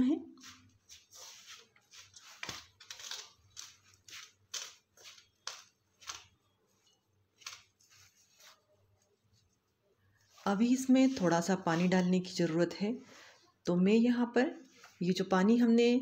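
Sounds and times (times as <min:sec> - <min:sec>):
hand mixing dry ingredients in bowl: 0:00.3 - 0:12.8
soft rustling crunches: 0:00.3 - 0:12.8.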